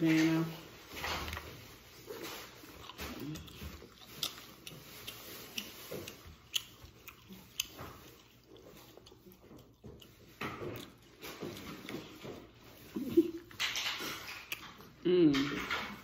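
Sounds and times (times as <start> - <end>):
mouth chewing food: 0.6 - 16.0.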